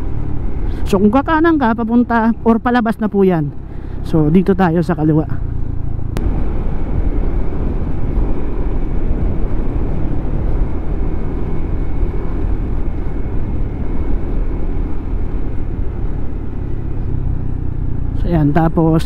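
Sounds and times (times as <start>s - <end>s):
motorcycle engine running: 0.0s - 19.0s
wind rushing over microphone: 5.4s - 18.8s.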